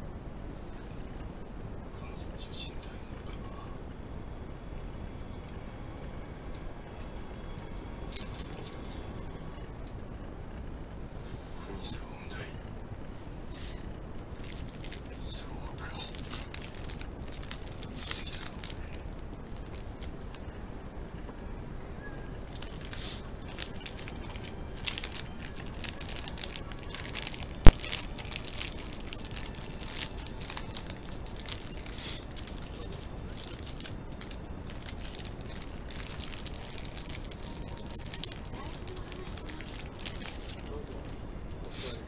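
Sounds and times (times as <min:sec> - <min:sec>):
plastic wrapper crinkling: 0:14.3 - 0:20.4, 0:22.4 - 0:41.2.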